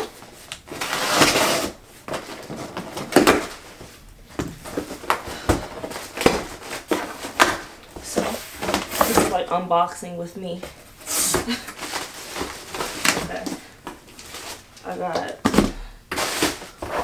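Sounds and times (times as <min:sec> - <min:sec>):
cardboard scraping and rustling: 0:00.0 - 0:04.0, 0:04.6 - 0:09.5, 0:11.0 - 0:14.7, 0:15.4 - 0:17.0
packing tape ripping: 0:00.5 - 0:03.6.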